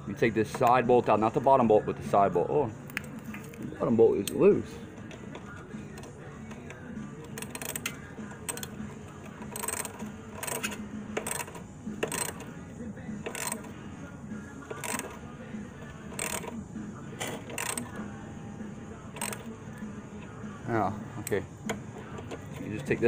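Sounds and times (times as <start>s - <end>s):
wrench clicking on metal bolt: 5.0s - 12.5s, 13.2s - 13.7s, 14.7s - 15.2s, 16.1s - 16.6s.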